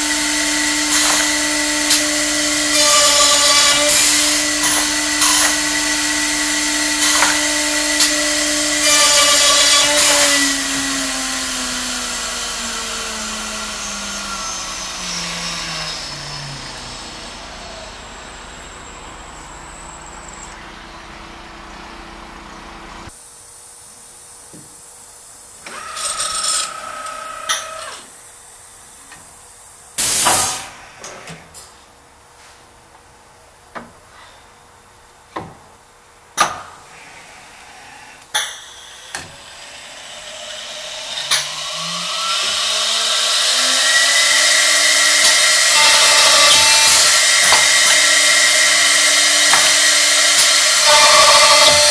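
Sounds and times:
loud drilling bursts: 0.0s - 20.4s, 25.7s - 28.2s, 39.4s - 51.9s
spindle motor tone: 13.2s - 23.1s.

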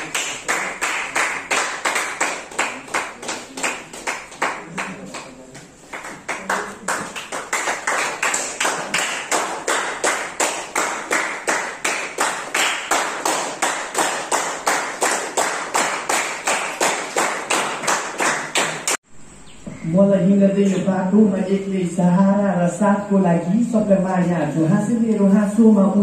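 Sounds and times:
group clapping in unison: 0.0s - 19.0s.

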